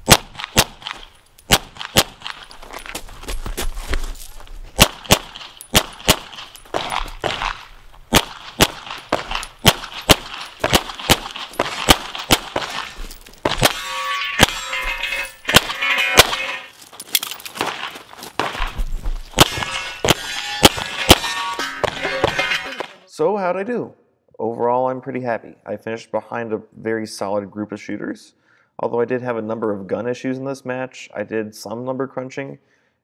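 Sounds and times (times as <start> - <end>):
pistol shots: 0.0 - 2.5, 4.8 - 16.7, 19.4 - 22.5
steel targets ringing: 12.8 - 16.8, 19.4 - 23.1.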